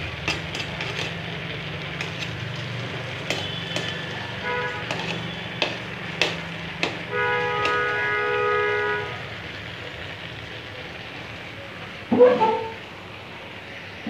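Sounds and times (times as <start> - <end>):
rice boiling: 0.0 - 14.0
metal ladle scraping a pot: 0.1 - 8.1, 12.1 - 12.8.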